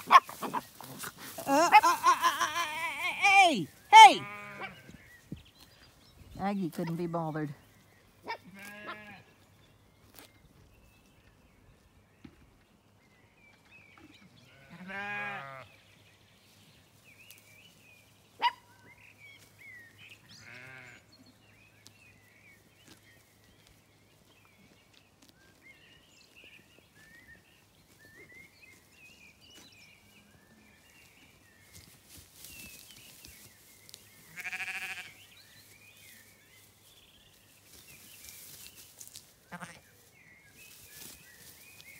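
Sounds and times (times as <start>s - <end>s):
sheep bleating: 1.2s - 4.9s, 8.3s - 9.3s, 14.5s - 15.7s, 20.3s - 21.1s, 34.3s - 35.2s, 39.5s - 39.9s.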